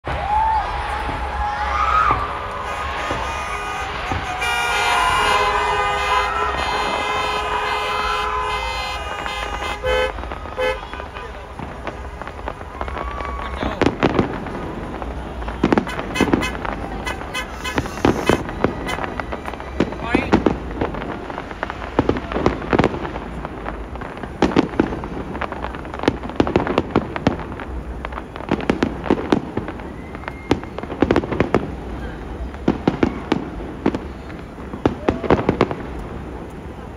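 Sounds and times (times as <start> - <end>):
fireworks bangs and crackles: 0.0 - 36.9
car horns blaring: 2.6 - 11.6, 15.6 - 19.2.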